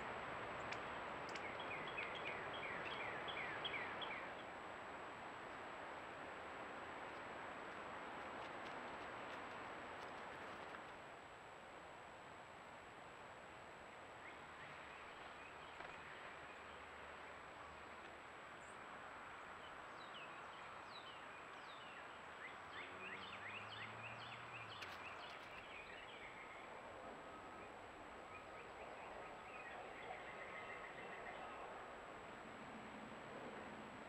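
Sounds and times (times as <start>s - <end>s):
bird singing: 0.6s - 4.5s, 19.6s - 26.8s, 27.4s - 31.7s.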